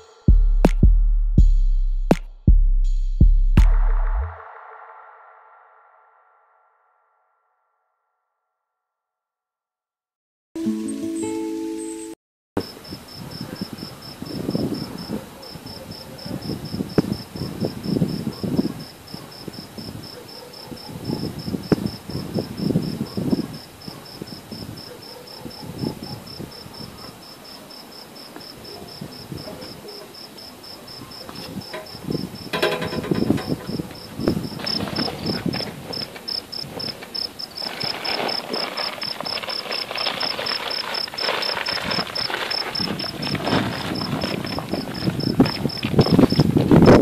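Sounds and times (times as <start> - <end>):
cricket chirping: 12.6 - 47.0
shuffling footsteps: 31.2 - 47.0
rustling: 31.3 - 46.2.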